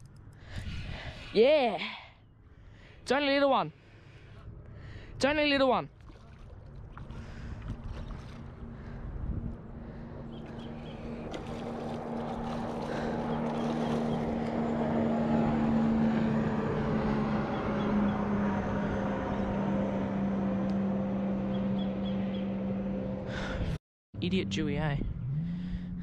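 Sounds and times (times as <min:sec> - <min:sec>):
wind and water noise: 0:00.0 - 0:01.8, 0:02.5 - 0:21.4
boat engine running: 0:05.2 - 0:26.0.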